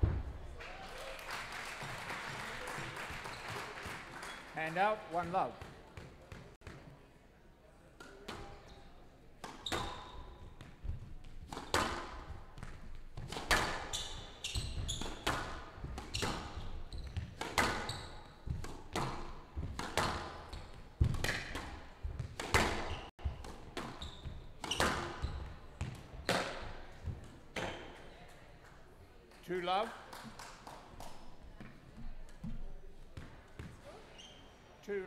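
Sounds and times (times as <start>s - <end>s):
squash ball hits echoing: 9.4s - 25.2s, 25.8s - 27.9s.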